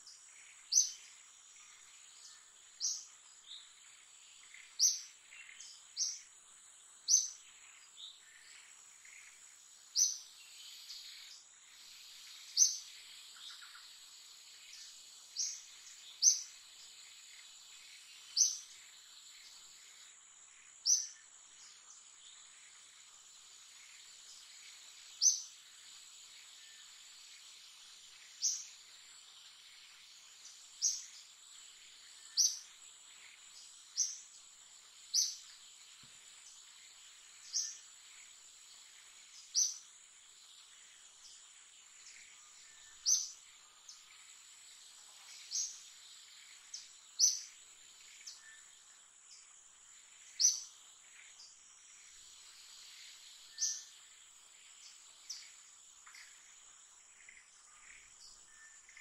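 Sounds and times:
sharp high insect chirps: 0.0 - 59.0
high-pitched insect drone: 49.9 - 59.0.

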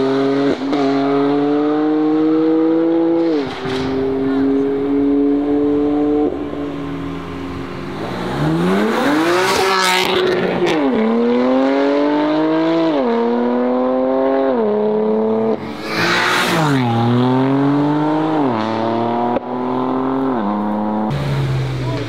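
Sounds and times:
car accelerating hard and upshifting: 0.0 - 22.0.

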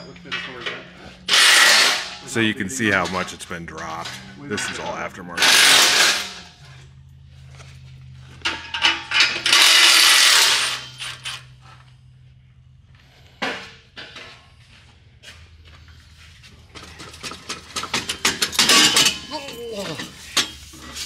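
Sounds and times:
steady low hum: 0.1 - 19.3
sharp metal clank: 1.3 - 2.4, 3.9 - 6.5, 17.9 - 20.6.

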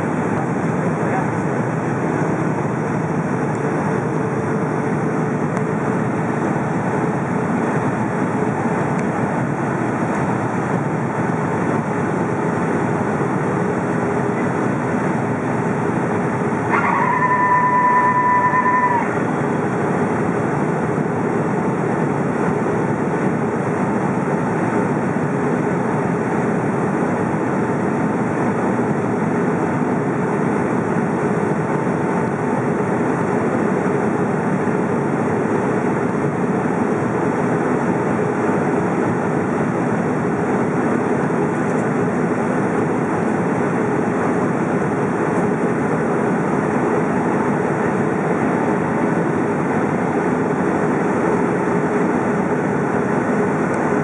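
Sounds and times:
aircraft cabin engine noise: 0.0 - 54.0
steady tone: 13.8 - 20.4.

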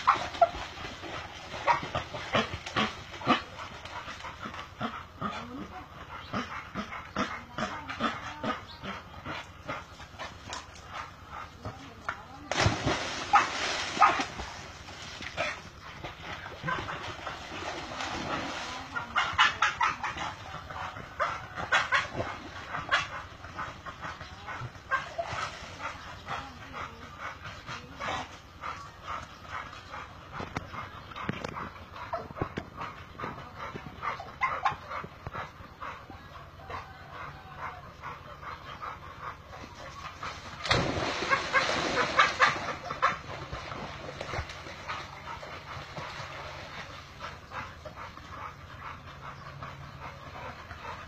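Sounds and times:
dogs barking: 0.0 - 0.6, 12.6 - 14.7, 18.8 - 27.0, 34.0 - 43.8
dog splashing into water: 12.4 - 15.6, 16.4 - 19.2, 40.4 - 44.8.

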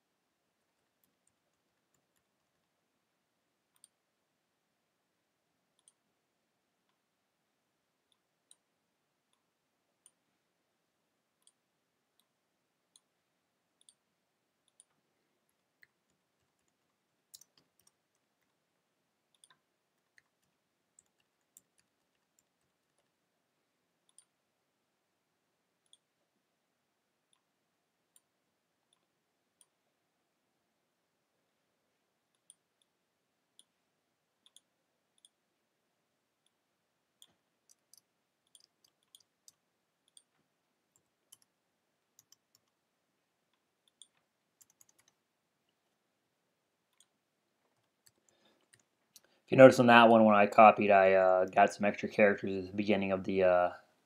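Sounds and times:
keyboard and mouse clicks: 0.8 - 2.8, 3.7 - 4.0, 5.8 - 6.0, 11.4 - 13.2, 13.8 - 14.0, 14.6 - 18.6, 19.3 - 23.2, 24.0 - 24.4, 25.8 - 26.1, 28.1 - 29.8, 32.3 - 33.8, 34.4 - 35.4, 37.2 - 42.8, 43.5 - 46.0, 46.9 - 49.4.

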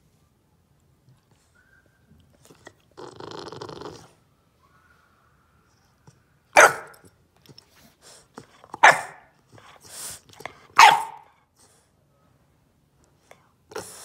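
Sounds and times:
puppy barking: 6.5 - 7.1, 8.8 - 9.3, 10.8 - 11.3.

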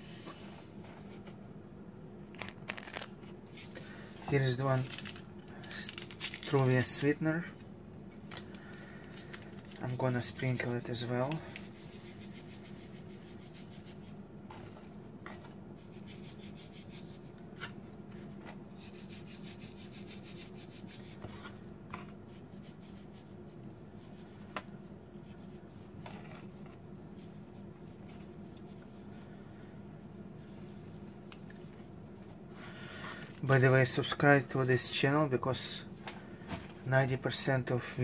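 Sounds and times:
steady low hum: 0.0 - 38.0
hands rustling paper packet: 2.3 - 3.8, 4.4 - 7.2, 8.2 - 14.1.

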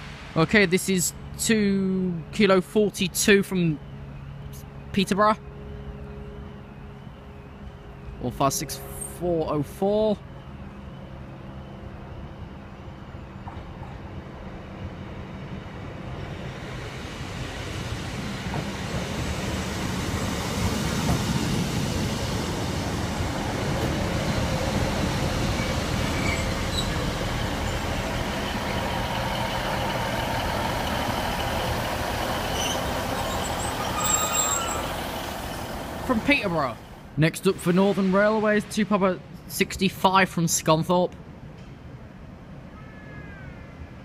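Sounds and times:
train engine and wheel rumble: 0.0 - 44.0
thin high squeal: 32.5 - 35.6.

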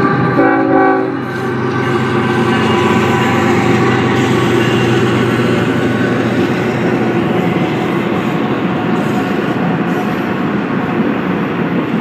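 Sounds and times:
diesel locomotive engines humming: 0.0 - 12.0
freight cars rumbling by: 1.0 - 10.6.

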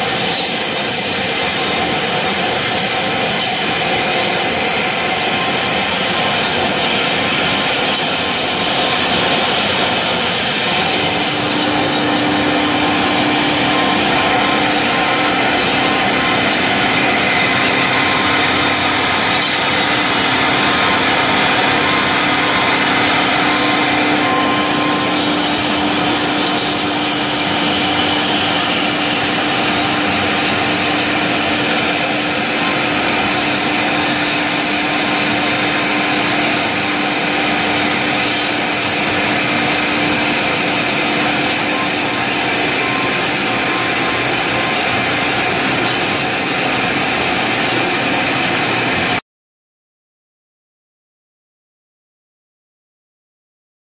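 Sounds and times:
cnc router spindles cutting: 0.0 - 49.2
dust extraction running: 0.0 - 49.2
steady hum: 0.0 - 49.2.

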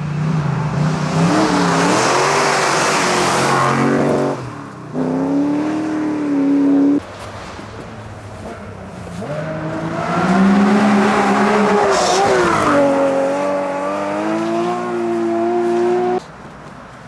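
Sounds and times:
rally car engine passing: 8.2 - 16.2.

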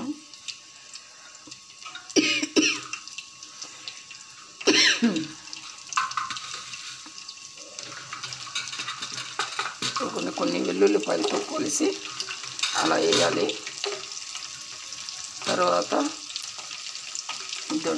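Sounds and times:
chillies sizzling in oil: 0.0 - 17.9
person coughing: 2.2 - 2.9, 4.6 - 5.3.

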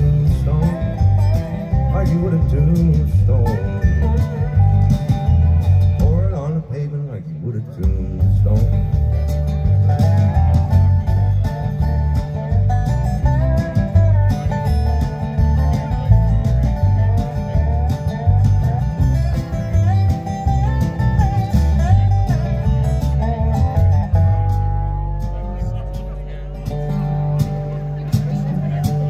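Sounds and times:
sliding lead melody: 0.0 - 6.9, 7.9 - 29.0
country band playing instrumental: 0.0 - 29.0
strummed acoustic guitar: 0.0 - 29.0.

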